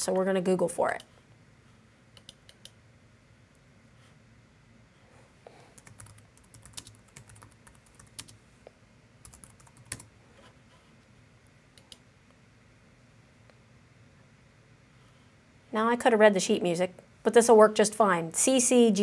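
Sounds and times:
computer keyboard typing: 0:05.7 - 0:08.4, 0:09.2 - 0:10.1.

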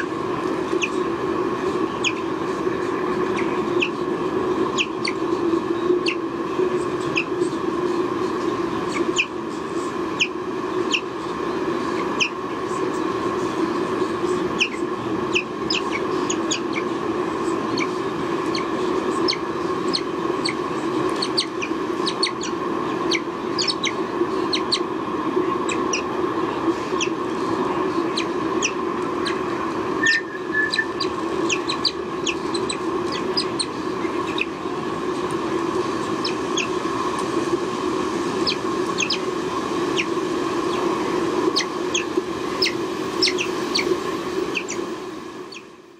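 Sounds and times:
steady hum: 0:00.0 - 0:45.9
high bird chirps: 0:01.9 - 0:02.2, 0:03.3 - 0:04.0, 0:12.2 - 0:12.4, 0:14.6 - 0:24.9, 0:28.0 - 0:34.5, 0:41.5 - 0:43.9, 0:44.5 - 0:44.9, 0:45.5 - 0:45.7.

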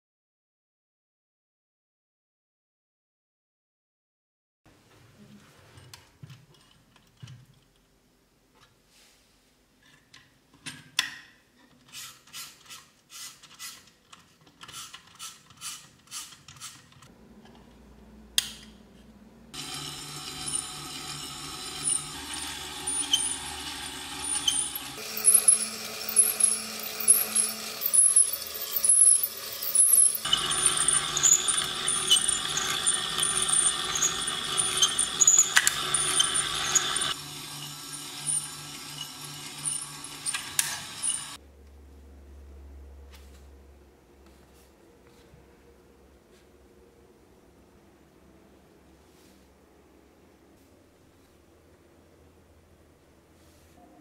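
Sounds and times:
electric drive running with ticking: 0:19.5 - 0:41.4.

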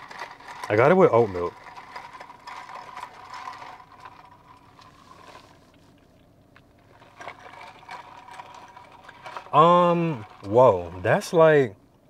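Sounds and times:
person sipping: 0:01.7 - 0:11.0.

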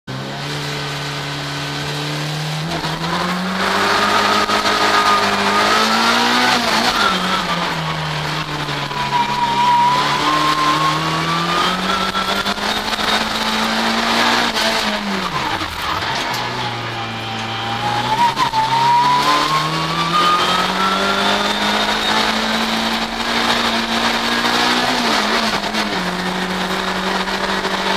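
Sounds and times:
race car engine accelerating: 0:00.1 - 0:27.9
high whine: 0:02.6 - 0:27.9.

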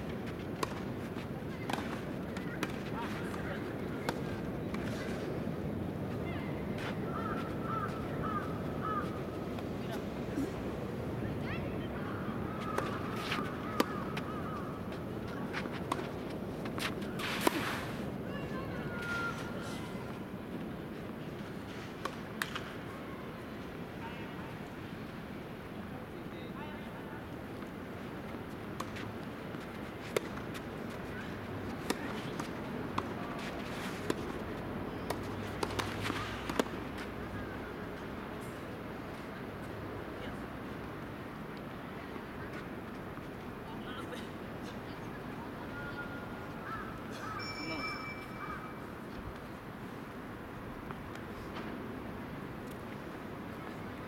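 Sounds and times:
tennis balls struck by rackets: 0:00.5 - 0:05.0, 0:12.8 - 0:17.8, 0:22.0 - 0:22.8, 0:28.7 - 0:29.1, 0:30.0 - 0:31.0, 0:31.6 - 0:37.4
tennis ball hit by rackets: 0:12.8 - 0:14.3, 0:22.0 - 0:22.7, 0:31.7 - 0:34.3, 0:35.0 - 0:37.0.

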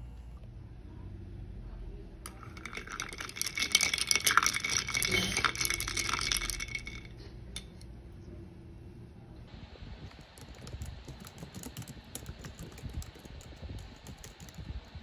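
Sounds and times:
ice cubes clinking in glass: 0:02.3 - 0:07.7.

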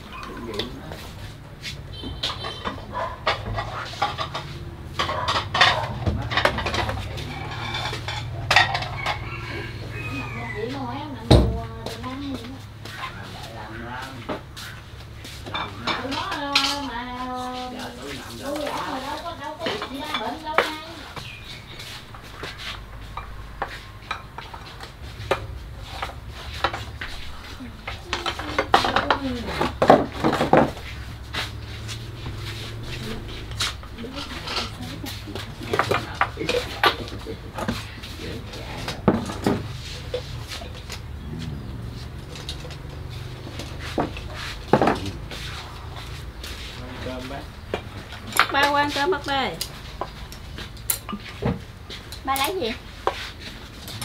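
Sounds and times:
ceramic bowls clinking: 0:02.2 - 0:10.1.

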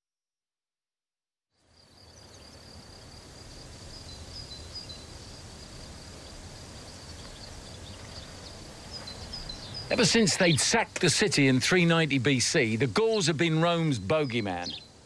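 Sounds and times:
high insect trill: 0:01.6 - 0:15.0
bird chirps: 0:03.9 - 0:05.2, 0:07.0 - 0:15.0.

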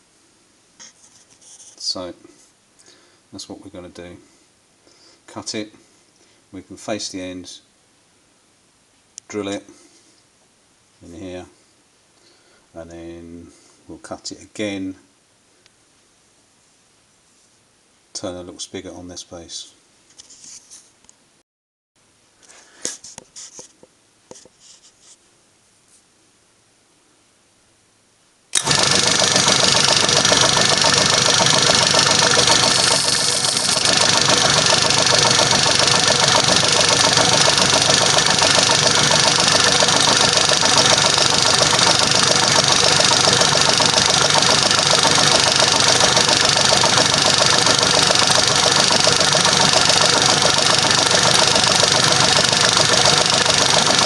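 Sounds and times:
drill boring into steel rod: 0:28.6 - 0:54.0
metal lathe droning: 0:28.6 - 0:54.0.

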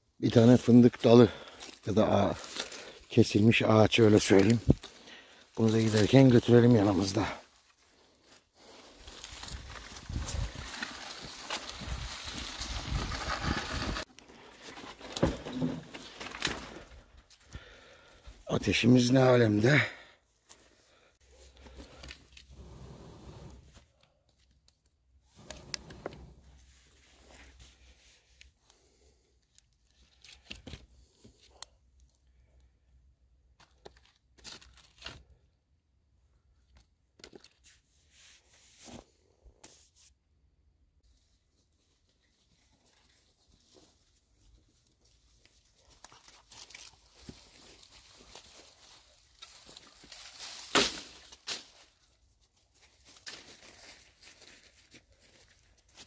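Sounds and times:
dry twigs crackling: 0:00.2 - 0:18.1, 0:42.6 - 0:56.0
branches scraping and knocking: 0:00.3 - 0:17.8, 0:42.4 - 0:56.0
campfire cracks and rustles: 0:08.3 - 0:17.7
sharp crack: 0:50.6 - 0:51.2.

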